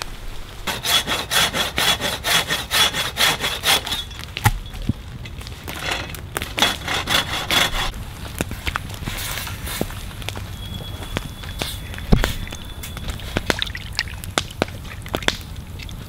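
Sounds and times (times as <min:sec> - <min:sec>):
hand saw cutting branch: 0:00.7 - 0:04.1, 0:05.7 - 0:07.9.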